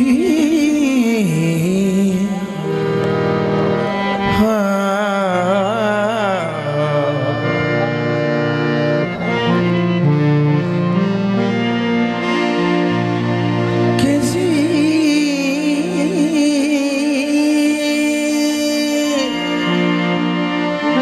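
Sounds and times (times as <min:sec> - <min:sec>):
man singing wordless phrase: 0:00.0 - 0:02.8, 0:04.2 - 0:07.5, 0:14.0 - 0:19.4
harmonium playing chords: 0:00.0 - 0:21.0.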